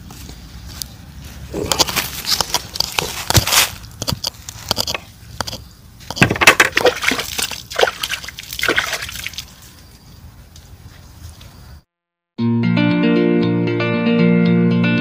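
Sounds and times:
water splashing and dripping: 0:06.2 - 0:09.8.

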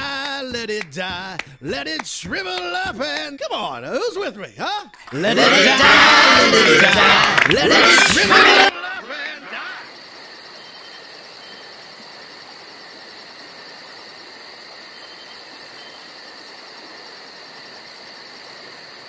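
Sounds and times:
crickets chirping: 0:08.4 - 0:19.0.

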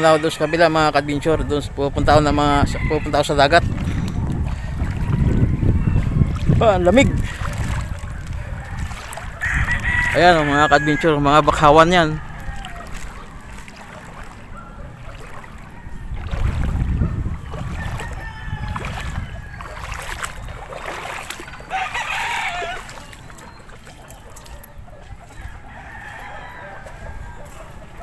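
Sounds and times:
rooster crowing: 0:00.0 - 0:00.9, 0:02.4 - 0:03.7, 0:08.4 - 0:13.6, 0:17.0 - 0:20.2, 0:21.6 - 0:23.2, 0:25.3 - 0:27.8
low rumble on microphone: 0:01.2 - 0:09.9, 0:12.2 - 0:21.3.

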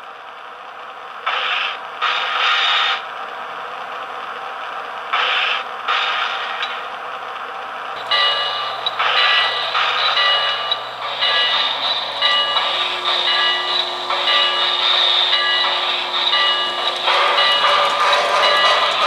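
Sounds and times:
bell ringing: 0:08.0 - 0:19.0
steam hiss: 0:08.0 - 0:19.0.

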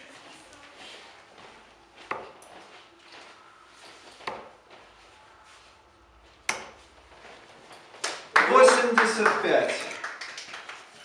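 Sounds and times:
darts hitting dartboard: 0:04.2 - 0:04.5, 0:06.5 - 0:06.8.

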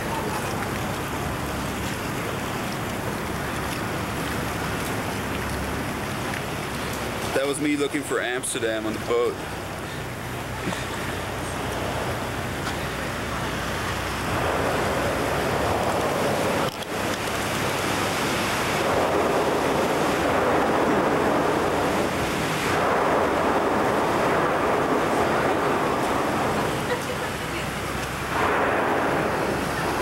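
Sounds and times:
low boat engine hum: 0:00.0 - 0:30.0
rush of water: 0:00.0 - 0:30.0
wind on microphone: 0:10.1 - 0:30.0.

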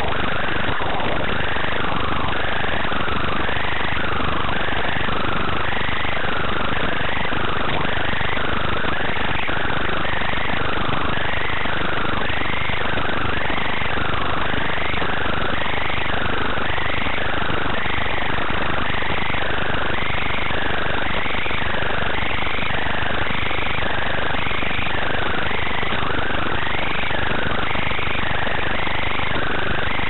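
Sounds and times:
static hiss: 0:00.0 - 0:30.0.

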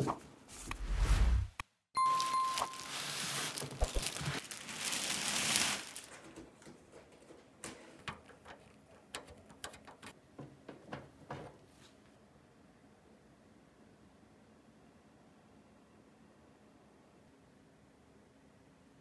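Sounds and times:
plastic wrap rustling and scraping: 0:00.5 - 0:08.8
sharp taps and clicks on panels: 0:06.3 - 0:11.6.

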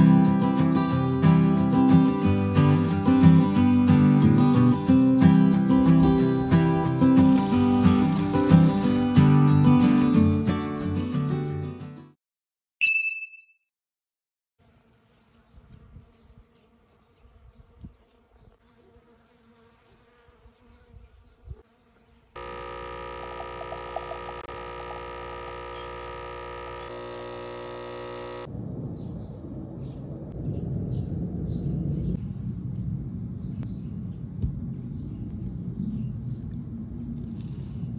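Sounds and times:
short bright chime: 0:12.8 - 0:13.7
steady insect buzz: 0:14.6 - 0:28.5
outdoor background noise: 0:14.6 - 0:37.9.

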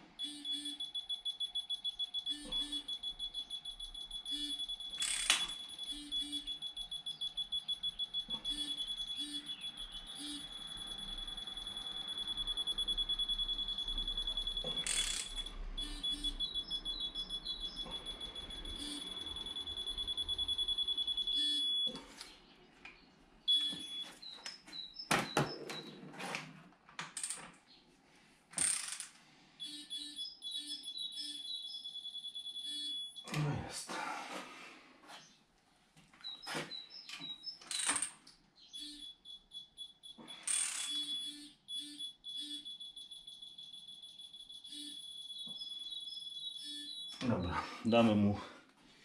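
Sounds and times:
high-pitched electronic beeping: 0:00.1 - 0:22.0, 0:23.5 - 0:24.2, 0:29.6 - 0:33.4, 0:38.7 - 0:47.6.

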